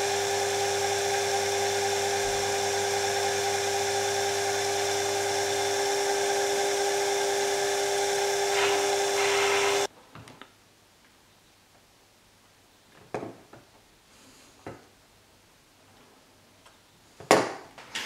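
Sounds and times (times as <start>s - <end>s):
lathe cutting noise: 0.0s - 9.9s
metal lathe motor whine: 0.0s - 9.9s.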